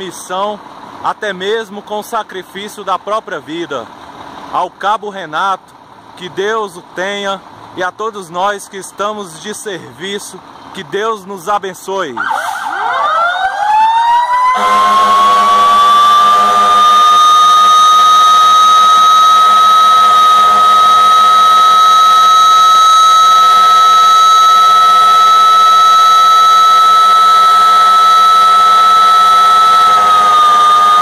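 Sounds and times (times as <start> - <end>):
fire engine siren wailing: 12.2 - 31.0.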